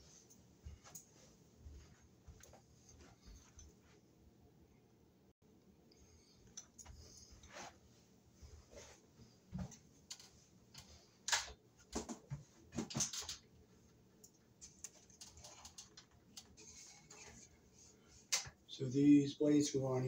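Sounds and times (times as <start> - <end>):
fan blades and hardware handled: 9.5 - 18.7.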